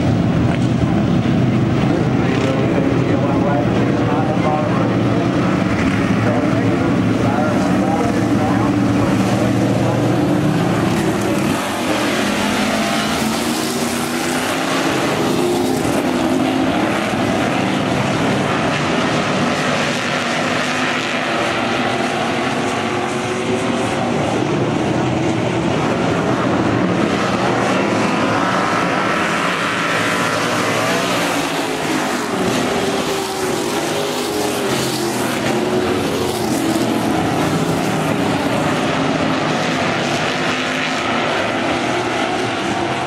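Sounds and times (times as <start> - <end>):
stock car engines racing: 0.0 - 43.0.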